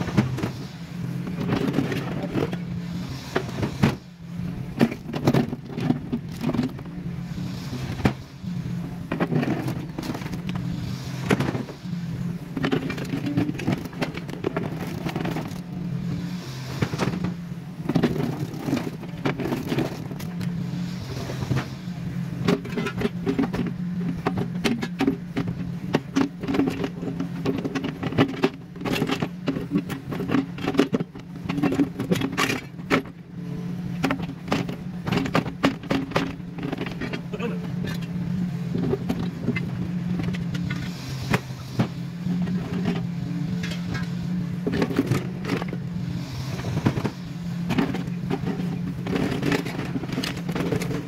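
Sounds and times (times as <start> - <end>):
diesel engine running under load: 0.0 - 51.0.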